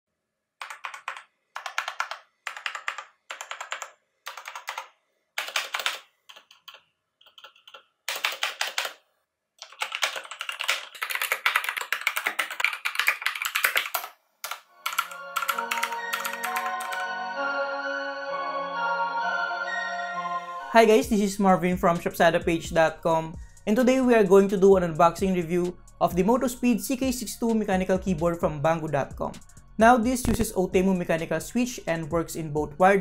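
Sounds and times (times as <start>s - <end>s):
mechanical keyboard typing: 0.6s - 9.0s, 9.6s - 17.1s
music: 14.7s - 33.0s.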